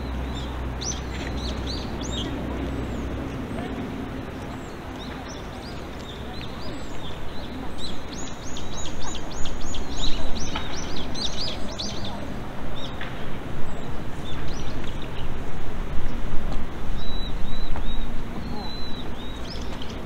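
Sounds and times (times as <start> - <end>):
low background noise: 0.0 - 20.0
bird chirping: 17.0 - 20.0.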